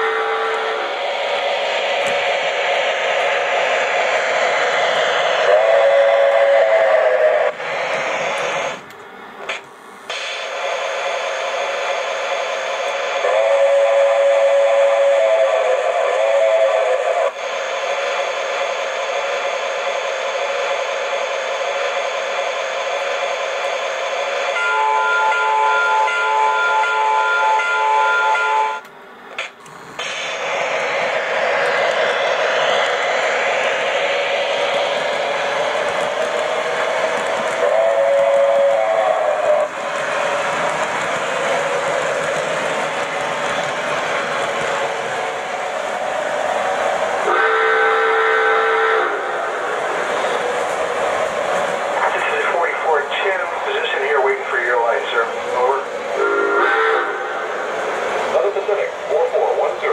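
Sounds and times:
chime steam whistle: 0:00.0 - 0:02.5, 0:04.7 - 0:08.7, 0:13.2 - 0:17.4, 0:24.3 - 0:28.9, 0:37.6 - 0:40.4, 0:47.2 - 0:49.4, 0:56.2 - 0:57.4
steady steam hiss: 0:00.0 - 0:59.9.

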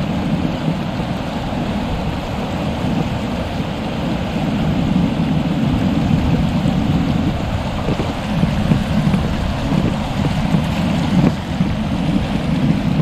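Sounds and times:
river water rushing over rocks: 0:00.0 - 0:13.0.

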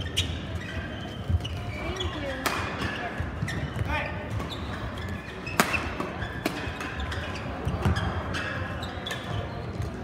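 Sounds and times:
shoes squeaking on court: 0:00.0 - 0:10.0
rackets hitting shuttlecock: 0:02.3 - 0:04.5, 0:05.4 - 0:07.2.

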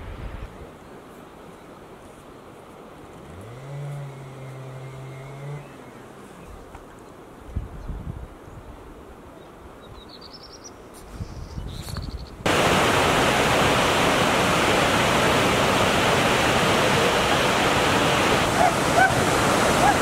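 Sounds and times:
mountain stream rushing over rocks: 0:12.5 - 0:20.0.

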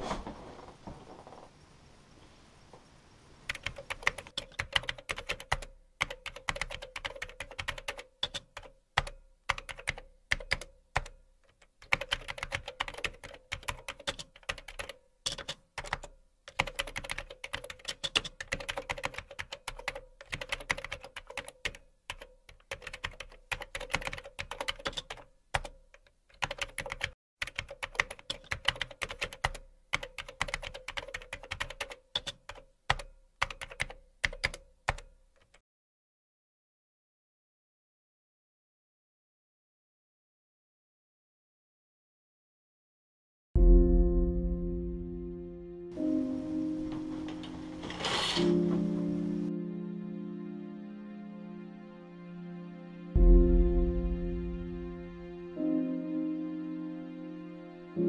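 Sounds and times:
fast typing on keyboard: 0:03.5 - 0:35.6.

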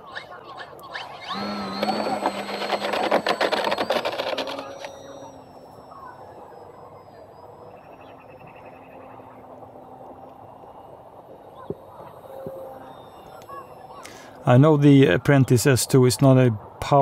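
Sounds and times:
model plane motor whine: 0:00.9 - 0:14.8.

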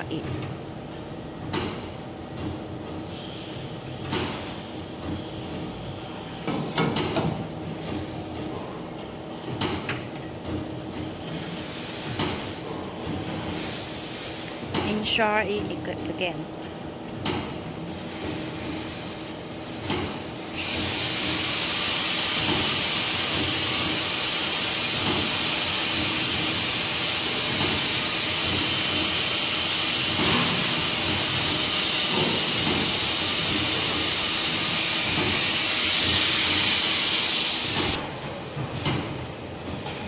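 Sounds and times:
air tool hissing: 0:03.1 - 0:03.7, 0:20.6 - 0:38.0.

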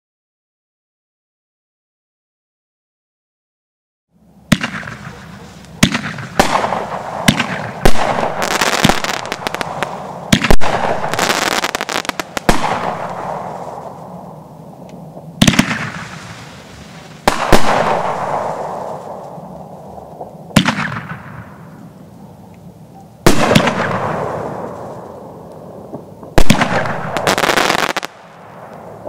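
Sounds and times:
fireworks reports with echo: 0:04.4 - 0:29.0.

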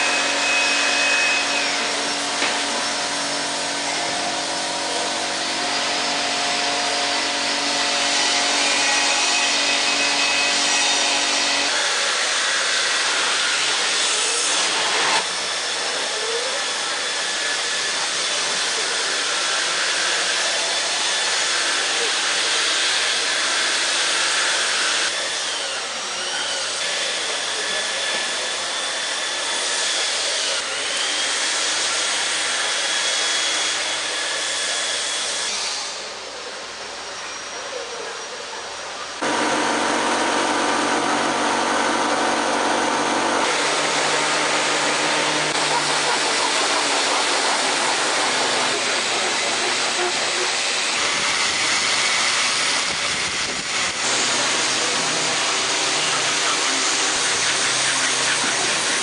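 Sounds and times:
power tool hissing whine: 0:00.0 - 0:37.7, 0:38.7 - 0:59.0
motor humming: 0:39.2 - 0:59.0.

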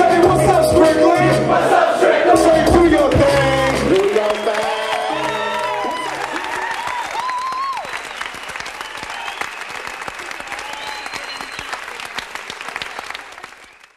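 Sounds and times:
audience applauding: 0:03.1 - 0:13.9.

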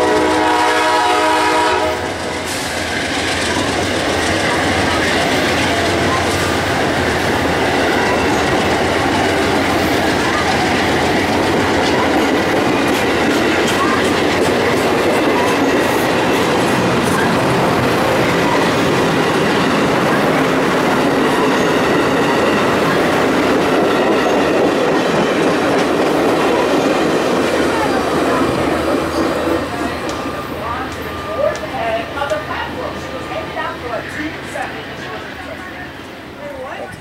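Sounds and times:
train wheels rushing on rails: 0:00.0 - 0:37.0
wheels clacking over rail joints: 0:02.9 - 0:32.5.

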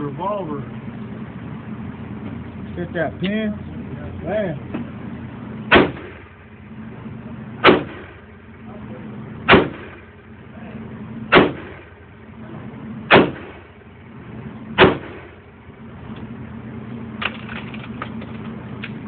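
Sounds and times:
steady low hum: 0:00.0 - 0:19.0
revolver shots echoing: 0:05.7 - 0:06.5, 0:07.6 - 0:08.5, 0:09.4 - 0:10.3, 0:11.3 - 0:12.1, 0:13.1 - 0:13.9, 0:14.7 - 0:15.5.

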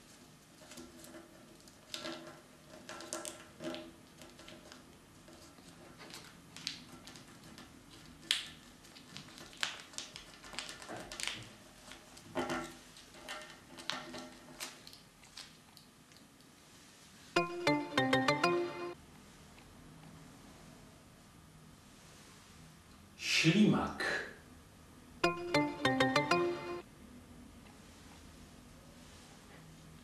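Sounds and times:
paper crinkling and rustling: 0:00.6 - 0:15.6.

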